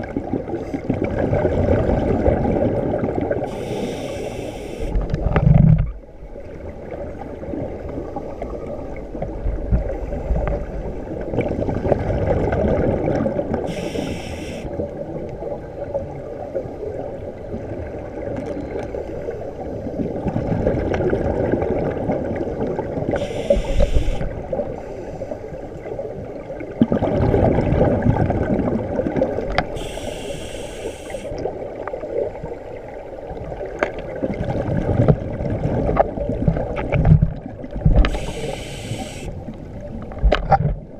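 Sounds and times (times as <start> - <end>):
exhaled air bubbling: 0.0 - 15.5, 19.8 - 40.9
scuba regulator hissing inhale: 3.5 - 5.0, 13.7 - 14.8, 23.2 - 25.5, 29.8 - 31.4, 38.0 - 39.4.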